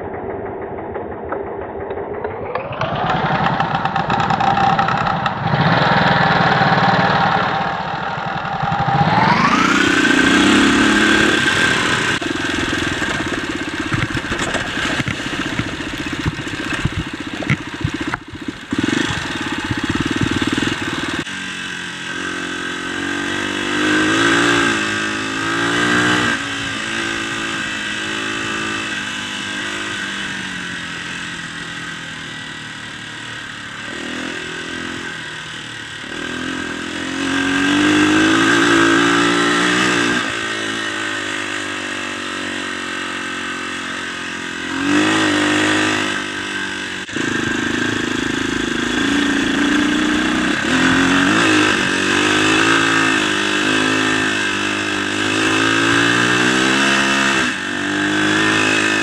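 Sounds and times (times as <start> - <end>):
dirt bike engine revving: 1.4 - 59.0
bike knocks and rattles: 12.7 - 21.2.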